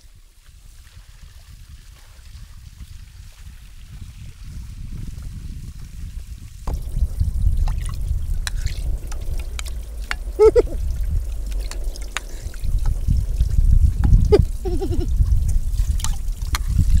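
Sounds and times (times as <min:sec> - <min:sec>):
water pouring and trickling: 0:00.2 - 0:17.0
small splashes and clicks: 0:07.6 - 0:14.6, 0:15.2 - 0:17.0
high wavering vocal call: 0:10.3 - 0:10.8, 0:14.3 - 0:15.1.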